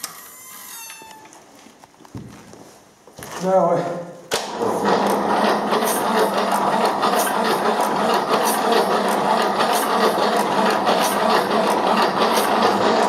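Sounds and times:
diesel engine cranking: 4.5s - 13.0s.

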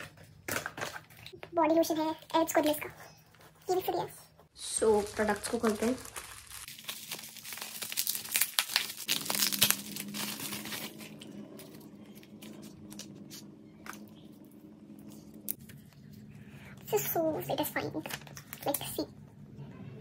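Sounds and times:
bubble wrap crinkling and rustling: 4.6s - 14.3s.

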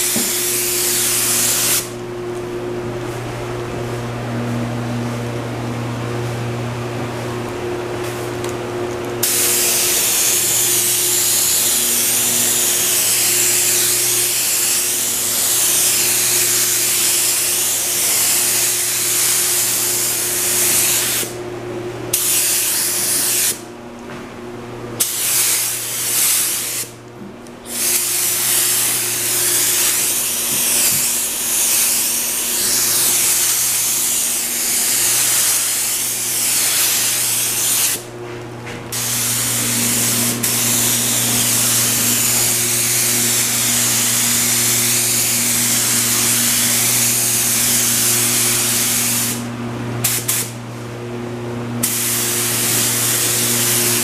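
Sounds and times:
spray gun hissing: 0.0s - 1.9s, 9.2s - 21.4s, 22.1s - 23.6s, 25.0s - 27.0s, 27.7s - 38.0s, 38.9s - 49.4s, 50.0s - 50.6s, 51.8s - 54.0s
steady low hum: 0.0s - 54.0s.

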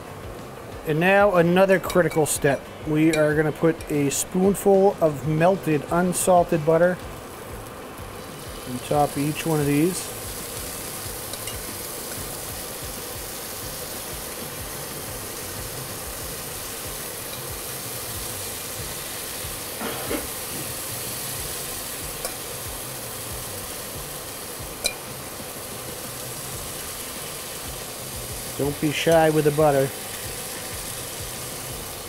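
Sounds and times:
fish sizzling in a skillet: 0.0s - 32.0s
range hood fan hum: 0.0s - 32.0s.

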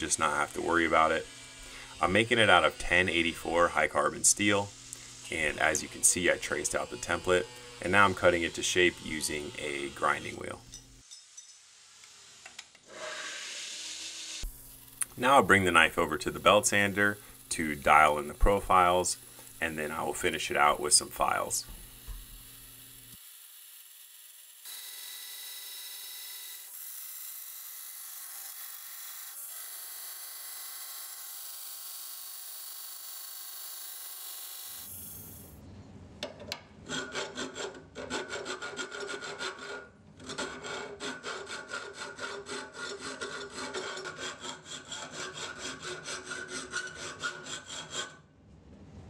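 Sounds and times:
belt sander grinding steel: 0.0s - 35.6s, 36.9s - 48.2s
hand file rasping on steel: 15.0s - 22.5s, 36.9s - 48.2s.

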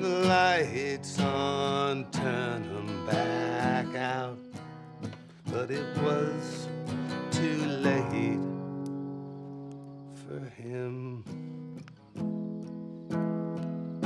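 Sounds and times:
man singing: 0.0s - 4.6s, 5.5s - 8.6s, 10.2s - 11.4s
strummed acoustic guitar: 0.0s - 14.0s.

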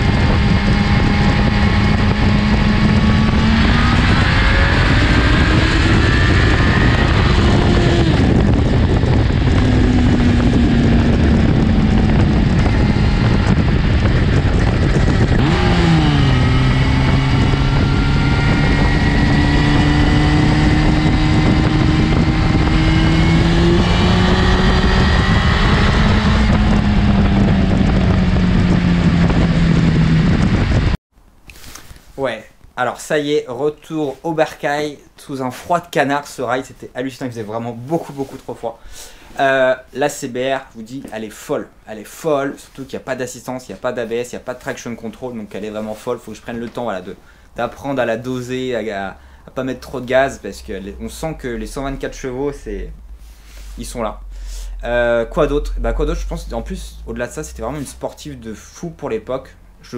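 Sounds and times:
motorcycle engine revving: 0.0s - 31.0s
wind rush: 0.0s - 31.0s.

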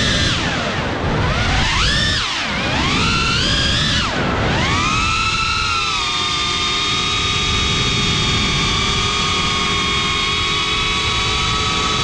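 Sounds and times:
drone motors whining: 0.0s - 12.0s.

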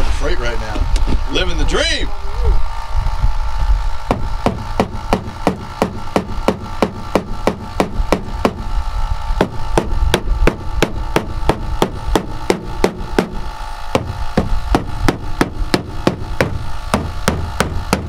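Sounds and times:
air compressor hum: 0.0s - 18.0s
mallet tapping on steel panel: 9.4s - 13.4s.

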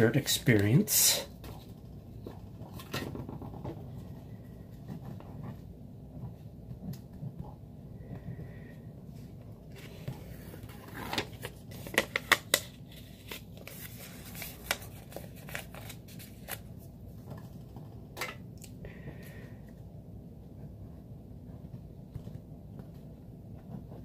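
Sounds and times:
paper rustles: 9.7s - 17.6s.

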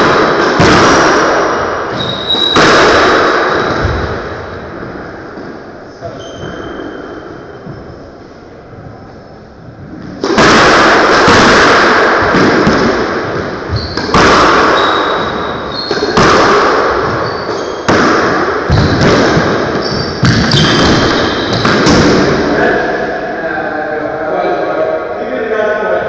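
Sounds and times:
squash ball hits echoing: 0.0s - 7.8s, 9.8s - 23.3s
shoe squeaks on wooden floor: 1.9s - 2.6s, 6.0s - 7.9s, 13.7s - 14.1s, 14.7s - 16.2s, 17.1s - 17.9s, 19.7s - 22.0s.

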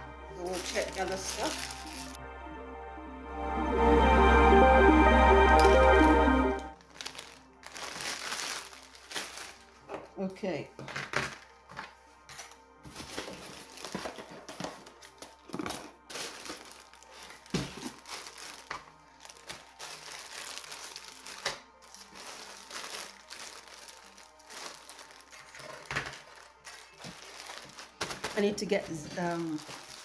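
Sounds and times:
music playing: 0.0s - 9.8s
packaging crinkling and rustling: 0.4s - 2.2s, 6.8s - 30.0s.

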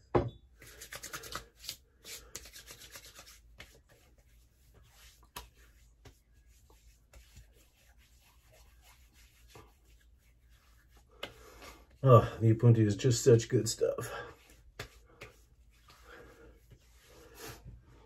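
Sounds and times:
hands rubbing skin: 0.6s - 12.0s, 14.1s - 17.8s
hands patting cheeks: 5.2s - 6.2s, 11.2s - 11.4s, 14.5s - 16.0s.

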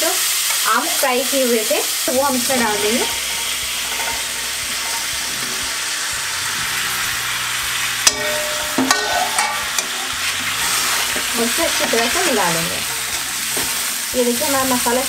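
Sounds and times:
mango pieces sizzling in oil: 0.0s - 15.0s
spatula stirring: 2.4s - 6.2s, 8.0s - 15.0s
spatula knocking on pan: 8.1s - 10.0s.

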